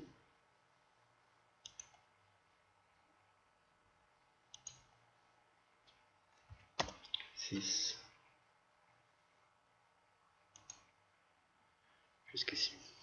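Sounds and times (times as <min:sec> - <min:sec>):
computer mouse clicks: 0:01.6 - 0:02.1, 0:04.5 - 0:04.9, 0:06.7 - 0:07.3, 0:10.5 - 0:10.9.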